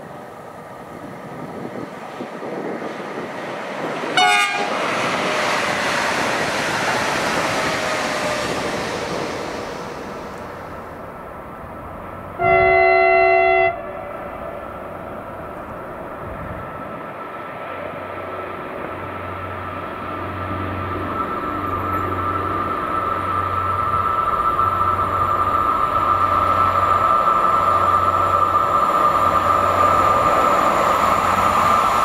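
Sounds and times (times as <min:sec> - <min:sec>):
train rolling past: 0:00.0 - 0:32.0
locomotive horn note: 0:04.2 - 0:04.8, 0:12.4 - 0:14.2
train horn blast: 0:04.2 - 0:04.8, 0:12.4 - 0:14.2.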